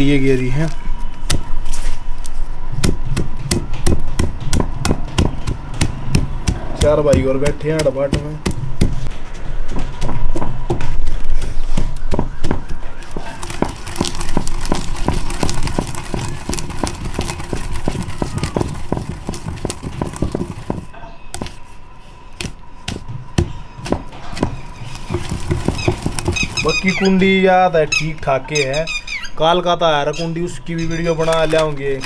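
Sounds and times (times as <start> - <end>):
pestle pounding in stone mortar: 2.7 - 9.1, 9.7 - 21.6, 22.4 - 27.1.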